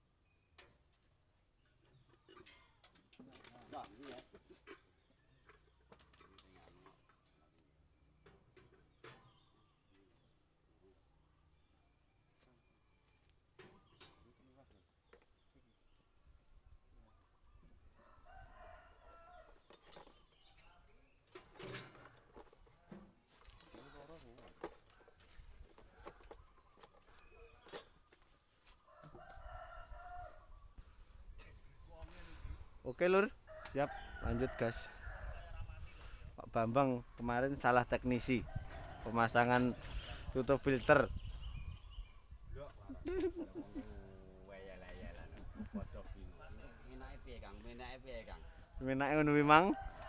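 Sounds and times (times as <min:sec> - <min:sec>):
rooster crowing: 0:49.7 - 0:50.0.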